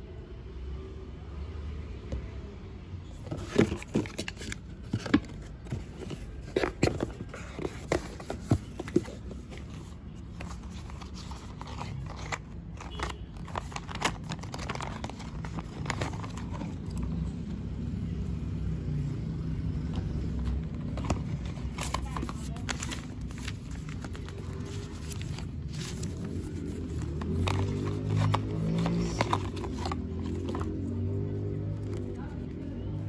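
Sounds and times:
card and paper rustling: 0:03.2 - 0:17.5, 0:19.8 - 0:31.2.

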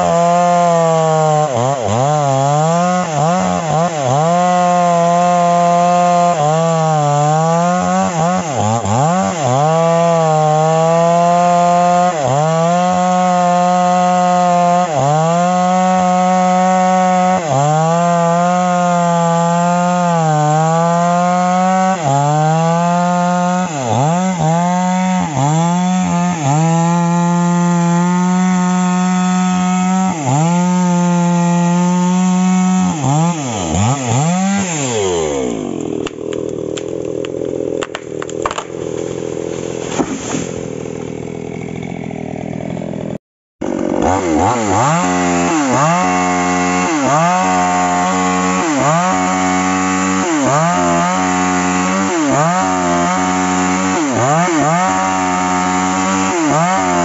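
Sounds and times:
chainsaw cutting wood: 0:00.0 - 0:57.0
tree cracking and falling: 0:32.2 - 0:41.6.

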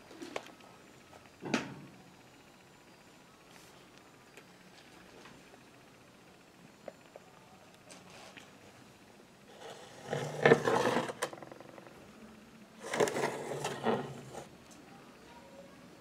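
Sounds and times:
hand rubbing and scraping toy: 0:09.5 - 0:11.9, 0:12.8 - 0:14.5.

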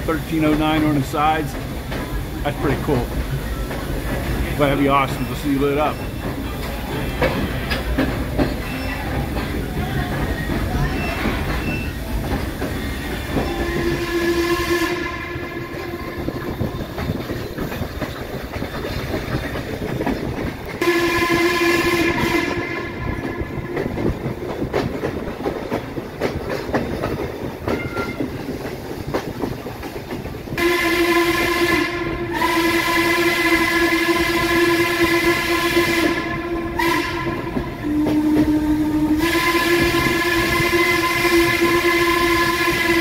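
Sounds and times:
train rumble and rail clatter: 0:00.0 - 0:43.0
steam whistle blasts: 0:13.4 - 0:16.3, 0:20.8 - 0:23.6, 0:30.6 - 0:43.0.

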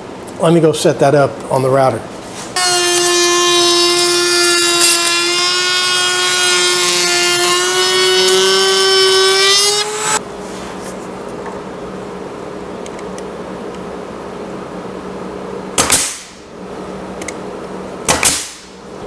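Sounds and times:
router motor whine: 0:02.6 - 0:10.2.

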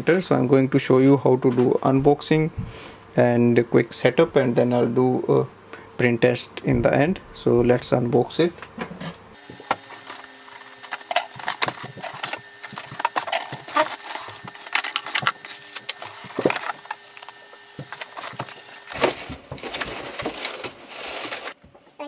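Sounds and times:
plastic bag crinkling: 0:09.5 - 0:21.6.

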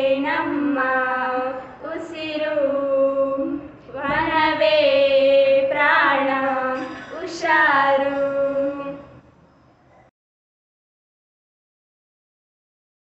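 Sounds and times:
girls singing unaccompanied: 0:00.0 - 0:09.2.

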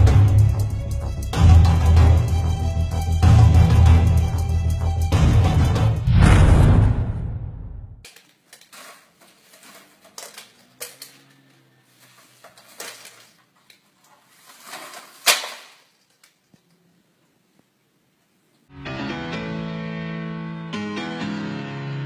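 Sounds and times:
plastic straws clicking: 0:08.0 - 0:11.5
plastic bag crinkling: 0:08.1 - 0:11.2, 0:12.0 - 0:16.4.

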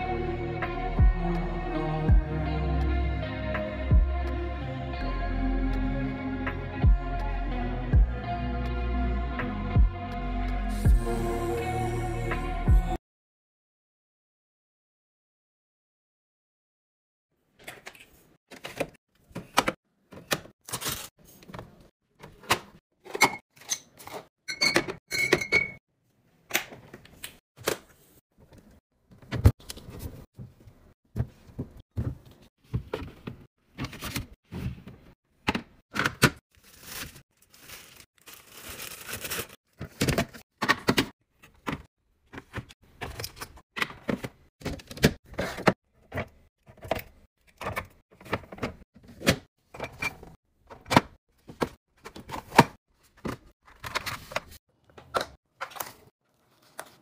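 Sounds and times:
plastic packaging rustling: 0:36.6 - 0:40.0.

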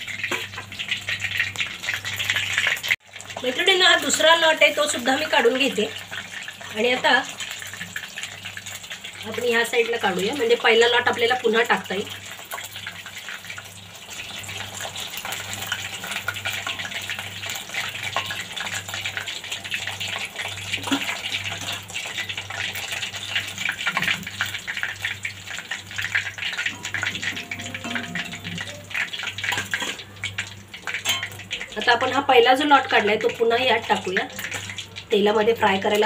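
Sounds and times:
deep-frying sizzling crackle: 0:00.0 - 0:36.0.

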